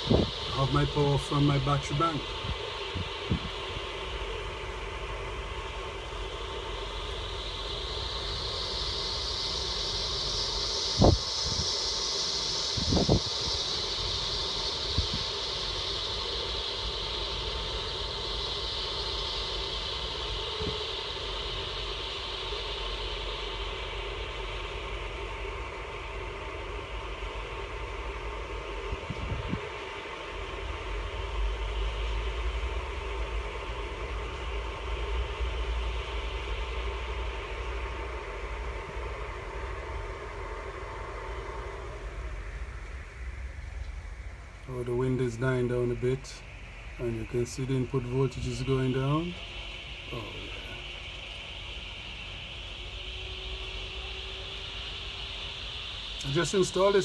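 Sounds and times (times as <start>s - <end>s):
gusty wind rumble: 0.0s - 6.0s, 9.3s - 15.8s, 28.8s - 29.9s
high whine falling in pitch: 0.0s - 57.0s
wind turbine whirring: 0.0s - 57.0s.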